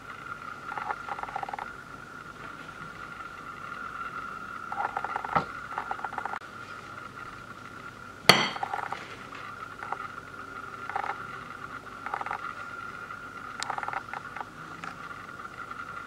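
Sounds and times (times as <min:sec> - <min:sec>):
metal knife clinking on tableware: 0:08.3 - 0:08.7.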